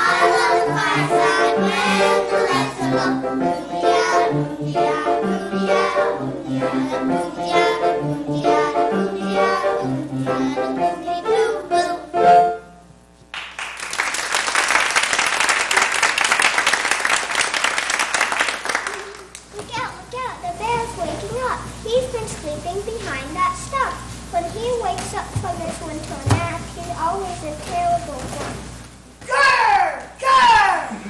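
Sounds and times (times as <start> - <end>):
young children singing: 0.0 - 12.6
instrumental accompaniment: 0.0 - 12.9
audience applause: 13.3 - 19.4.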